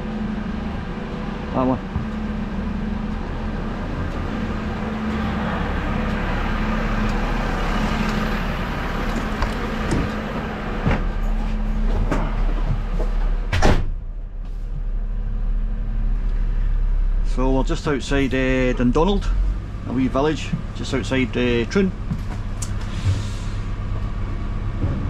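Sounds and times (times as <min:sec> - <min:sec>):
diesel engine idling: 0:00.0 - 0:24.9
cab door slamming: 0:13.5 - 0:14.0
knocks in truck cab: 0:13.5 - 0:14.0.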